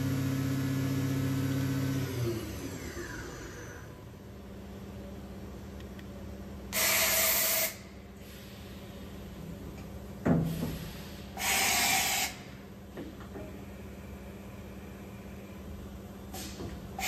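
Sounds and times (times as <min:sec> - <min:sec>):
compressed air hissing: 0:10.4 - 0:12.6, 0:16.3 - 0:17.0.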